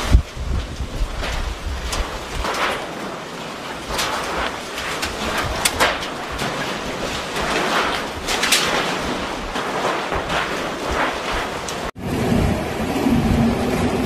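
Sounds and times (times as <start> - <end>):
heavy rain: 0.0 - 14.0
hurricane wind on microphone: 0.0 - 14.0
sheet metal clanking and scraping: 1.0 - 12.0.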